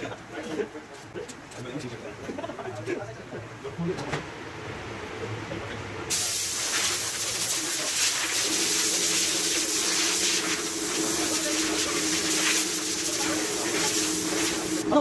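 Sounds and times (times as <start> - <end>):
steady hum: 1.8 - 15.0
rushing air hissing: 6.1 - 14.9.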